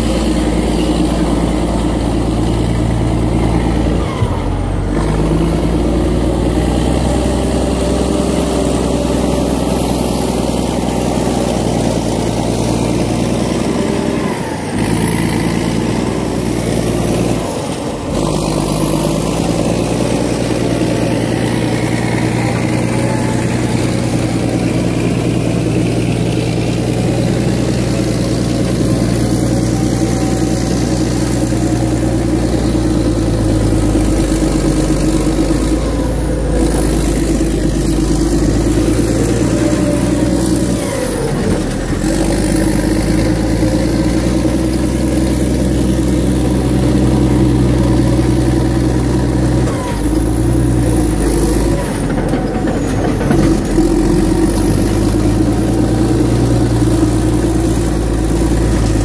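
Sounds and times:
bulldozer diesel engine running: 0.0s - 59.0s.

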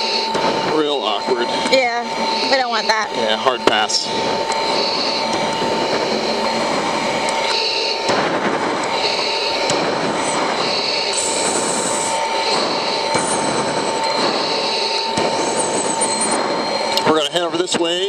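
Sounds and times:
jet cockpit noise: 0.0s - 18.0s
whistle-like tone: 10.9s - 17.2s.

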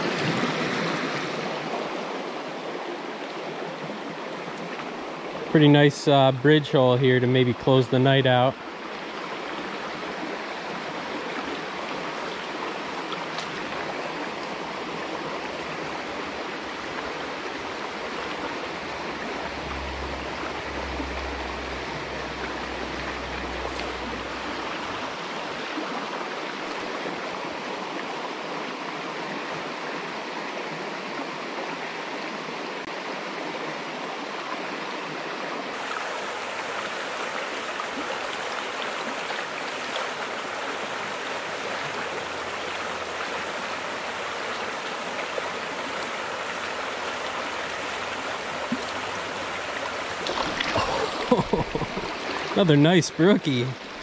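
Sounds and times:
stream running over stones: 0.0s - 54.0s
low rumble: 17.9s - 25.2s.

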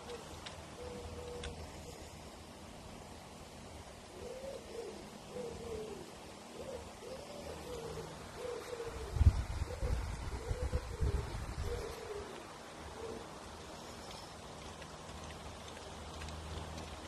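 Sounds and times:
pigeon cooing: 0.0s - 2.1s, 4.1s - 14.3s.

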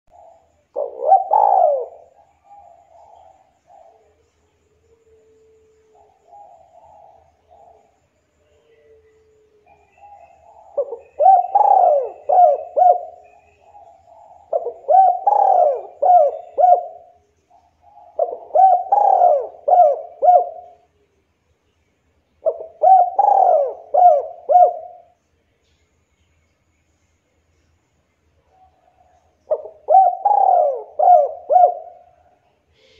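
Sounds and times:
dove cooing: 0.1s - 20.9s, 22.4s - 25.2s, 28.5s - 32.9s.

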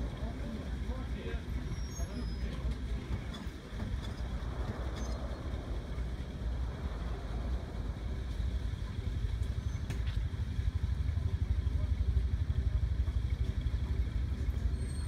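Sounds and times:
tank engine throbbing: 0.0s - 15.0s.

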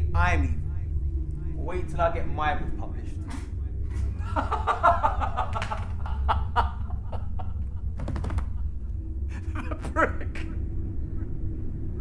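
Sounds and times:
low hum: 0.0s - 12.0s
man laughing: 3.9s - 7.8s, 8.4s - 10.6s.

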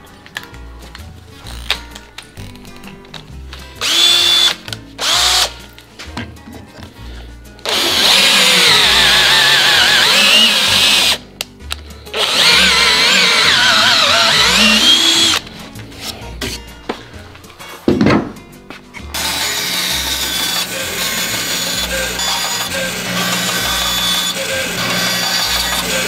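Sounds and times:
cordless drill running under load: 3.8s - 5.5s, 7.7s - 11.2s, 12.2s - 15.4s, 19.2s - 26.0s.

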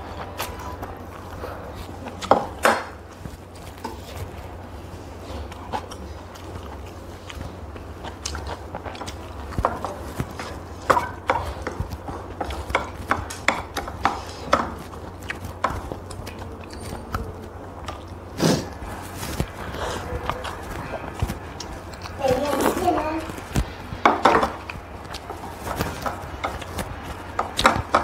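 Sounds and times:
steady low hum: 0.0s - 28.0s
chewing: 0.1s - 28.0s
chopsticks clicking against bowls: 5.4s - 18.2s, 23.2s - 28.0s
slurping noodles and soup: 17.9s - 23.8s.

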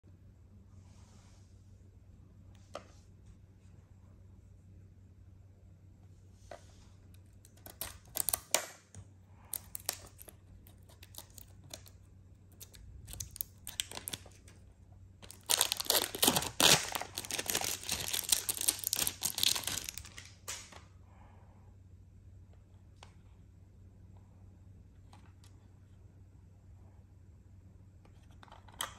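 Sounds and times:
cellophane crackles: 7.4s - 8.6s, 9.5s - 12.0s, 12.6s - 14.6s, 15.2s - 20.6s
cellophane wrap crinkling: 7.4s - 8.7s, 9.4s - 14.6s, 15.2s - 20.7s.

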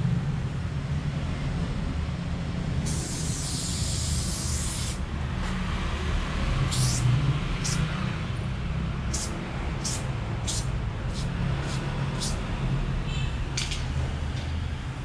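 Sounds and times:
spray paint can hissing: 2.8s - 5.1s, 6.6s - 7.9s, 9.0s - 12.5s.

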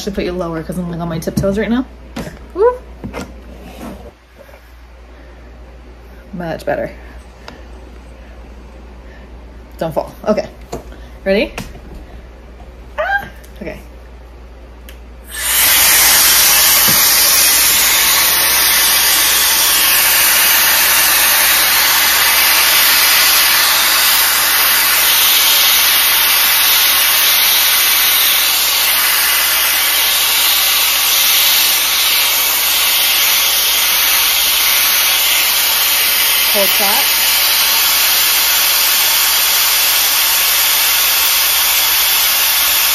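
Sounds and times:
air styler blowing hot air: 15.3s - 42.9s.

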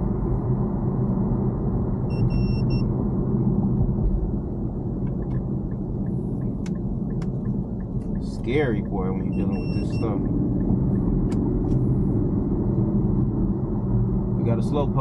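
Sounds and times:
car engine and road rumble: 0.0s - 15.0s
short electronic beep: 2.1s - 2.9s, 9.2s - 10.2s.

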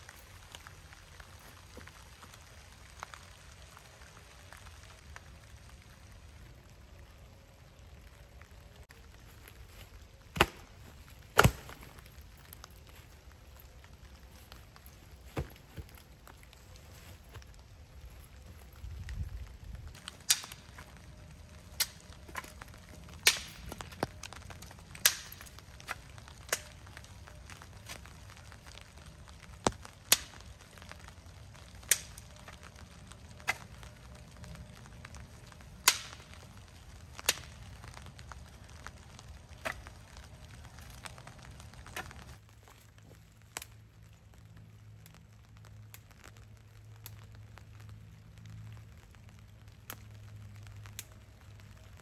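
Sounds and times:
dry sticks snapping: 9.0s - 17.6s, 18.3s - 43.8s, 50.7s - 51.2s.

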